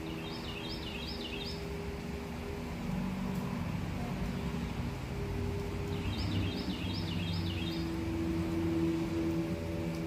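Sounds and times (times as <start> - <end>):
bird calling: 0.0 - 1.6, 5.9 - 8.0.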